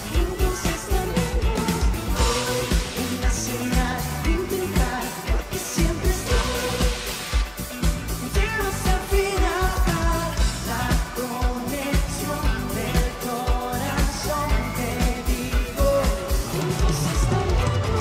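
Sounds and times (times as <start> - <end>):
two men singing: 0.0 - 7.6, 8.2 - 18.0
pop band with steady beat: 0.0 - 18.0.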